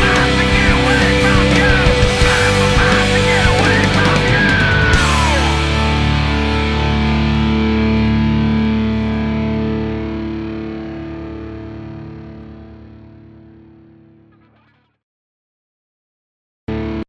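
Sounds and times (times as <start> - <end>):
rock song: 0.0 - 14.7
distorted electric guitar chord: 0.0 - 14.8, 16.7 - 17.0.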